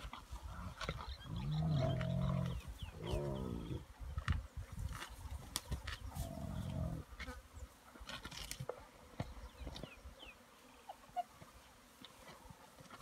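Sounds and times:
hyenas feeding clicks: 0.0s - 7.3s
hyena growling low: 0.4s - 3.9s, 6.2s - 7.1s.

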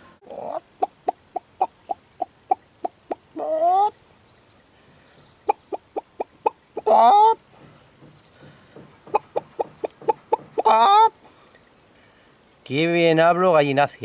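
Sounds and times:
hens clucking and squawking: 0.0s - 4.0s, 5.2s - 11.6s.

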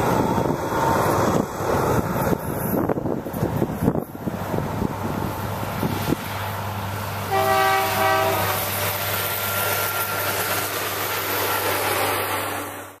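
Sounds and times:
rail vehicle rumbling: 0.0s - 13.0s
multi-tone air horn blasts: 7.3s - 8.8s.

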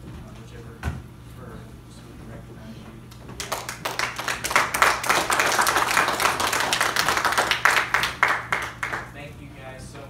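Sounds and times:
people applauding: 3.3s - 9.2s.

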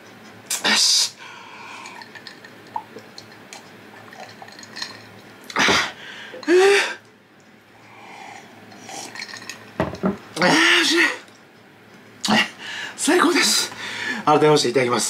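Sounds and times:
tableware clicking: 9.2s - 10.2s.

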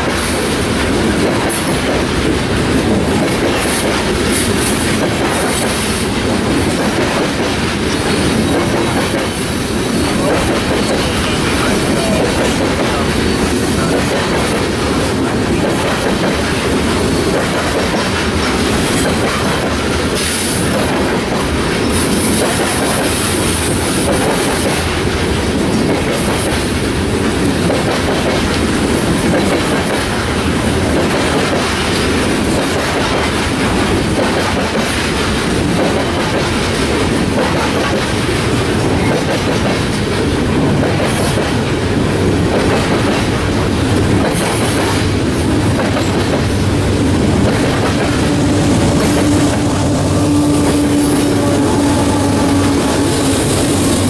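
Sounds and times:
freight train wheels on rails: 0.0s - 54.0s
locomotive engine tone: 46.5s - 54.0s.

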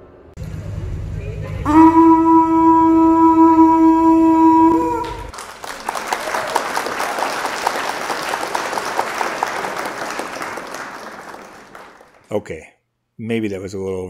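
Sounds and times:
sustained horn note: 0.4s - 5.3s
crowd applauding: 4.4s - 12.3s.

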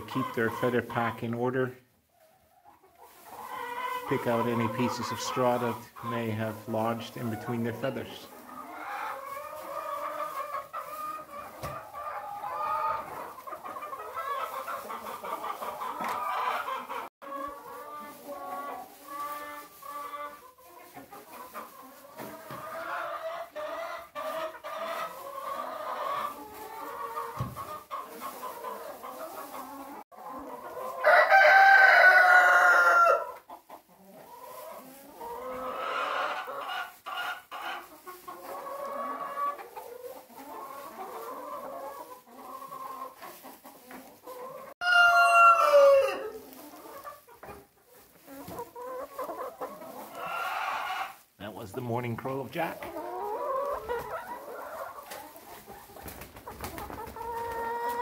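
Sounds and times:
hens clucking: 0.0s - 58.0s
rooster crowing: 31.0s - 33.3s, 44.8s - 46.3s.

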